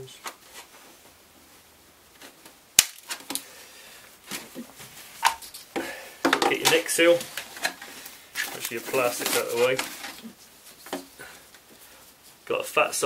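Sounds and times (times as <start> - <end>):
plastic shell being handled: 4.2 - 12.2.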